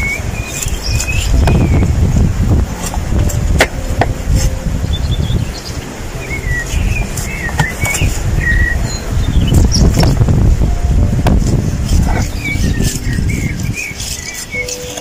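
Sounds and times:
small birds chirping: 0.0 - 2.3, 4.8 - 10.3, 11.5 - 15.0
loud low rumble: 1.2 - 13.9.

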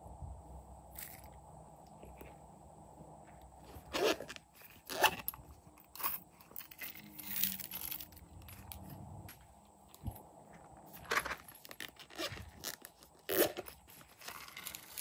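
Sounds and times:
plastic packaging rustling: 10.9 - 15.0.

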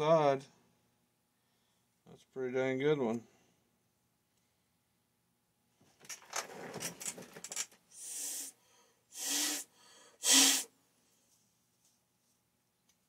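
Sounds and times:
clicking rustling handling noise: 5.8 - 7.8
short hisses of spray: 8.0 - 8.5, 9.2 - 10.7.

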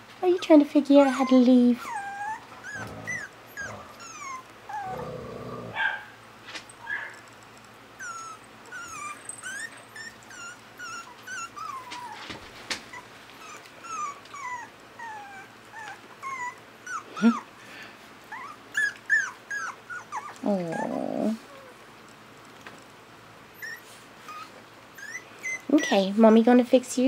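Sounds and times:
puppy yelp: 1.0 - 5.0, 8.0 - 17.4, 18.3 - 21.7, 23.5 - 25.9
puppies whimpering: 1.0 - 5.2, 8.0 - 21.8, 23.5 - 26.1.

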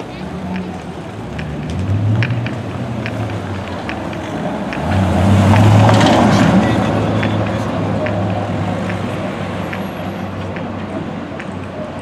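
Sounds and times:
car engines in traffic: 0.0 - 12.0
car driving past: 4.3 - 8.8.

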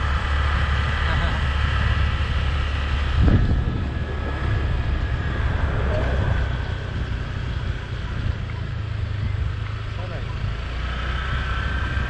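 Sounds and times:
motorbike running: 0.0 - 12.0
wind buffeting microphone: 0.0 - 12.0.

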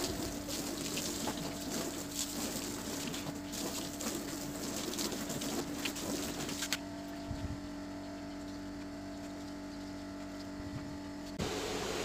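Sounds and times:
hose water splashing on plastic: 0.0 - 6.9
low motor hum: 0.0 - 12.0.

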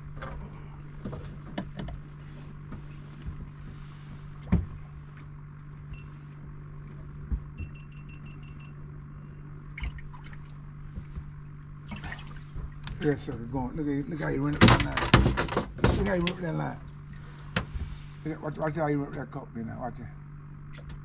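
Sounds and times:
short high beeps: 7.6 - 8.8.

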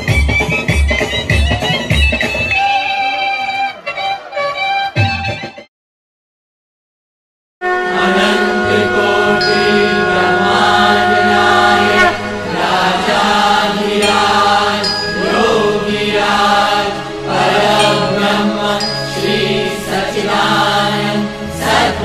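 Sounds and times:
devotional chanting: 7.7 - 22.0.

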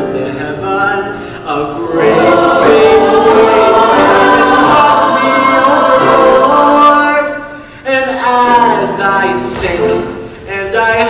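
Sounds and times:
choir singing in harmony: 1.4 - 7.6.

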